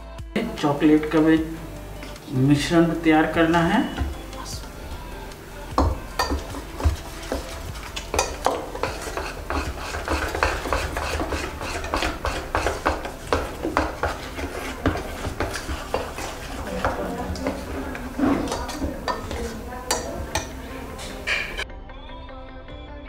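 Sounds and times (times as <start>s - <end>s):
metal utensils clinking in a bowl: 5.8s - 21.6s.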